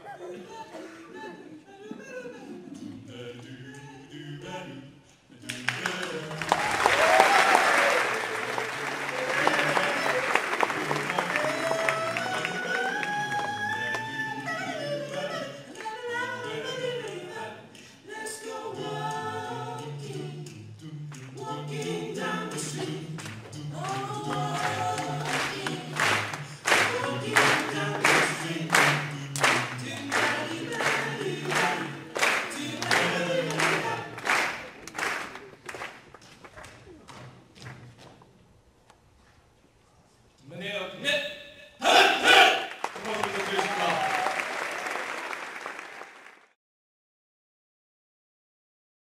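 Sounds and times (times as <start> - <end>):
male a cappella group singing: 0.3 - 7.1, 8.1 - 34.8
audience applause: 5.5 - 14.2, 23.2 - 36.9, 42.6 - 46.6.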